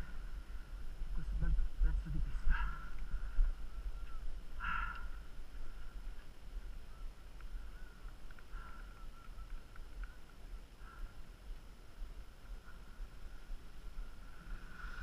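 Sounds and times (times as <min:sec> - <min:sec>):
skis sliding over snow: 0:11.8 - 0:15.0.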